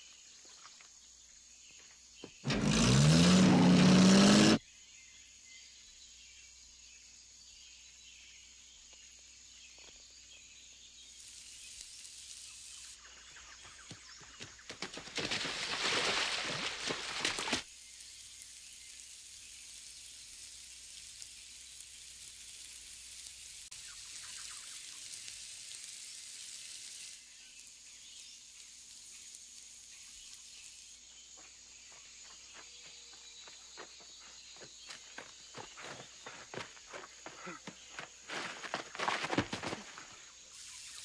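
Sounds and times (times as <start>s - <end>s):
high hiss of jungle ambience: 0.0s - 41.0s
person splashing through shallow water: 14.8s - 17.6s
footsteps crunching through debris: 31.4s - 40.2s.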